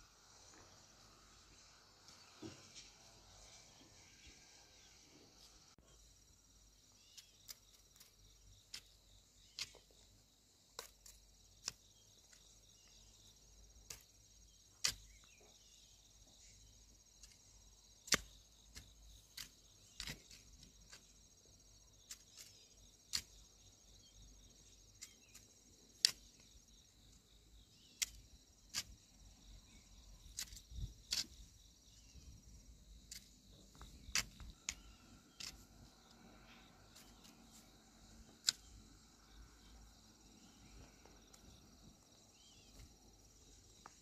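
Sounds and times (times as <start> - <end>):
insects chorus: 0.0 - 44.0.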